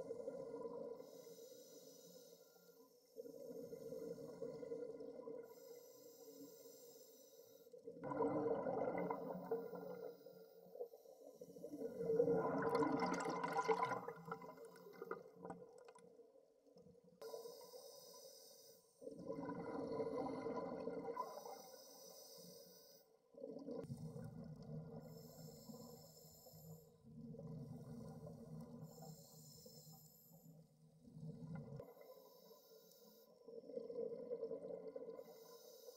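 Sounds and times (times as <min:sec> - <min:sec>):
exhaled bubbles underwater: 0:03.2 - 0:05.5, 0:07.8 - 0:10.1, 0:11.5 - 0:16.2, 0:19.0 - 0:21.6, 0:33.5 - 0:35.2.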